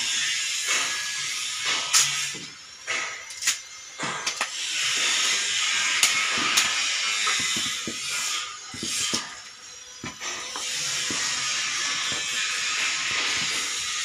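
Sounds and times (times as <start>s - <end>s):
steam hissing: 0.0s - 14.0s.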